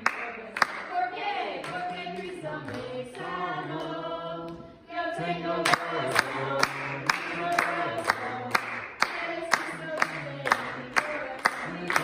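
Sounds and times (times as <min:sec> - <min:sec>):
group singing: 0:00.0 - 0:12.0
hand claps: 0:05.7 - 0:12.0.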